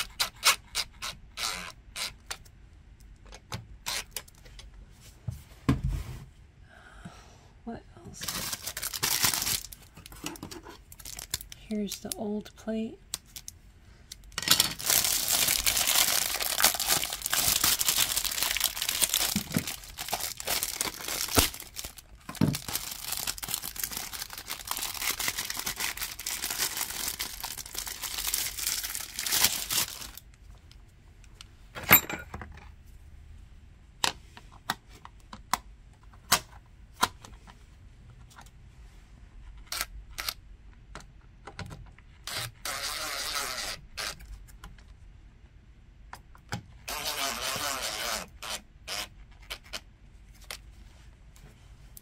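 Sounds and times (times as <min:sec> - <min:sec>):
plastic packaging crinkling and tearing: 0:08.2 - 0:12.2, 0:13.2 - 0:30.4.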